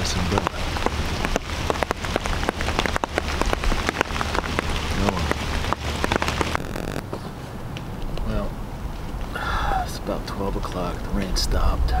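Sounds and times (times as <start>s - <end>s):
raindrops ticking on umbrella: 0.0s - 7.2s
rain hissing: 0.0s - 7.7s.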